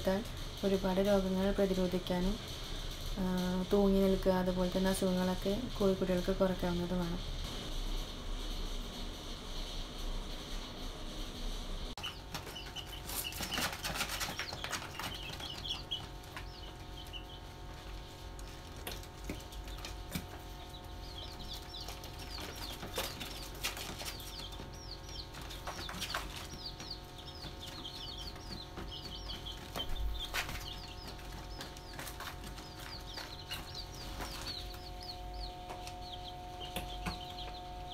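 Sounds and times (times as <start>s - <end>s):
chicks peeping: 0.0s - 37.9s
chicks pecking on paper: 12.0s - 37.9s.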